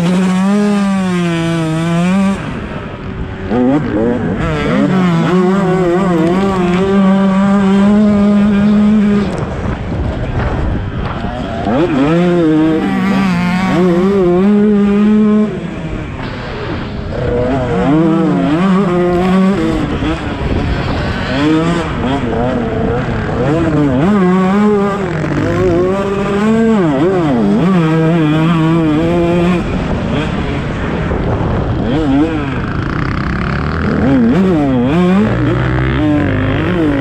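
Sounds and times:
motocross bike engine revving: 0:00.0 - 0:37.0
wind rushing: 0:28.6 - 0:35.4.

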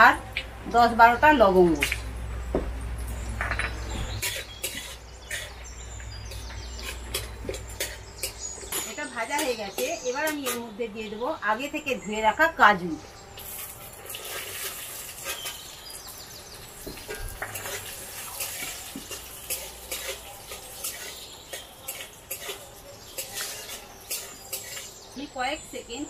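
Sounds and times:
metal spatula scraping a pan: 0:04.2 - 0:05.7, 0:06.3 - 0:10.8, 0:17.1 - 0:25.0
cashews sizzling in a pan: 0:13.3 - 0:25.9.

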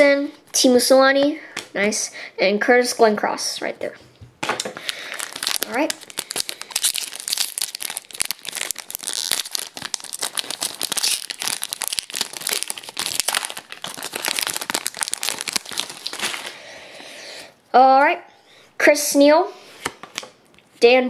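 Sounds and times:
foil wrapper crinkling and ripping: 0:04.6 - 0:16.7.

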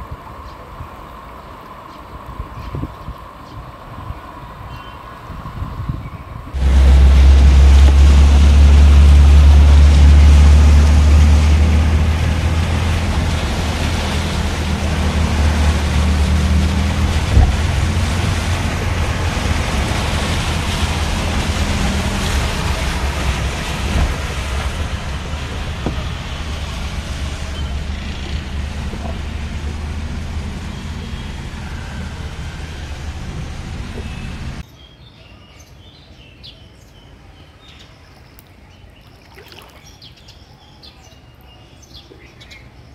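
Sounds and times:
car engine rumble: 0:06.5 - 0:34.6
water rushing against car: 0:06.6 - 0:34.6.

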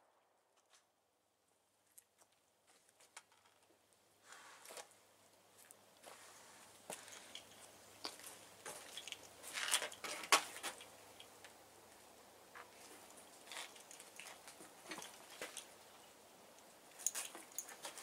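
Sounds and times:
faint clicks and scuffs: 0:04.2 - 0:11.6.

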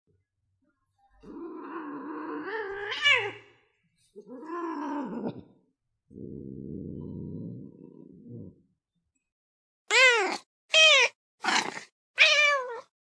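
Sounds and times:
cat meowing: 0:09.9 - 0:12.9.

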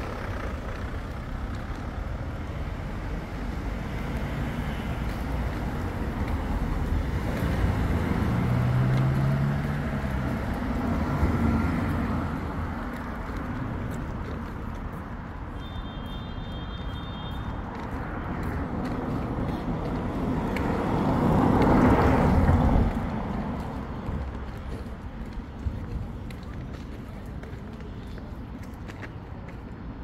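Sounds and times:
vehicle engine and tyre noise: 0:00.0 - 0:30.0
car driving past: 0:06.6 - 0:12.5.

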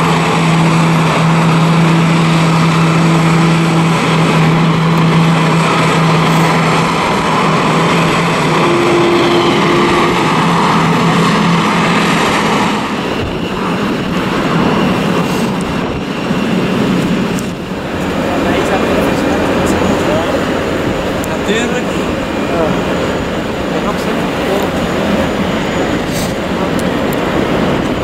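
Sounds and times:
jet airliner rushing: 0:00.0 - 0:28.0.

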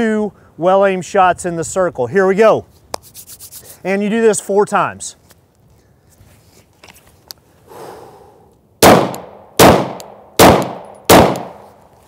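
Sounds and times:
handgun shots: 0:08.8 - 0:11.6.

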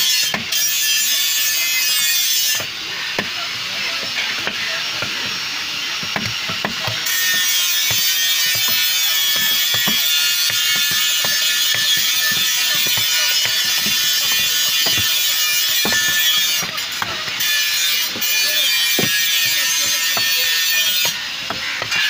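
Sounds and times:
knife chopping on wooden block: 0:06.0 - 0:22.0.

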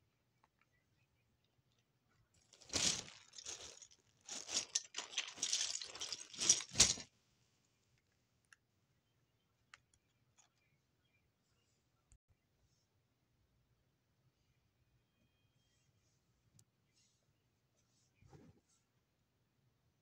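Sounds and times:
rustling and crunching handling: 0:02.4 - 0:07.1.

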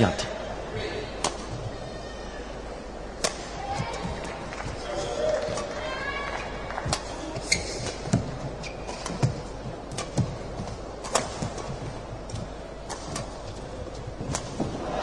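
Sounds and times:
low hall hum: 0:00.0 - 0:15.0
rackets hitting shuttlecock: 0:01.2 - 0:01.6, 0:03.2 - 0:04.3, 0:05.2 - 0:05.8, 0:06.8 - 0:14.8.

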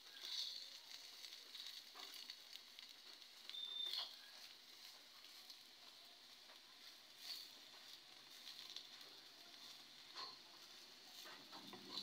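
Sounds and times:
pancake sizzling in oil: 0:00.0 - 0:12.0
metal spatula scraping pan: 0:09.6 - 0:12.0.

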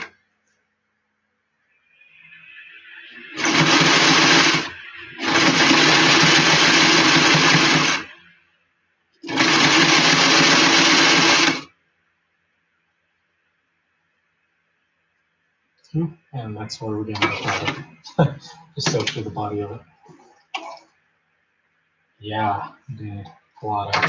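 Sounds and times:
electric sewing machine stitching: 0:03.2 - 0:08.2, 0:09.2 - 0:11.7, 0:17.2 - 0:17.8.

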